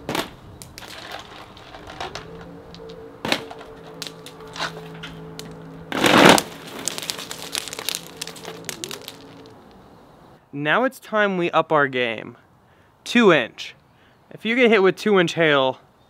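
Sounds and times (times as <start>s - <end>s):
ice balls striking fabric tent: 5.9s - 9.5s.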